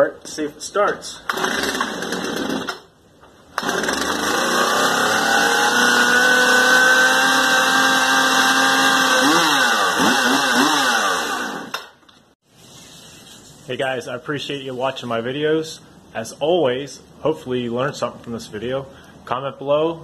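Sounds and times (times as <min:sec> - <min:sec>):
chainsaw engine running: 0:01.3 - 0:02.8, 0:03.6 - 0:11.8.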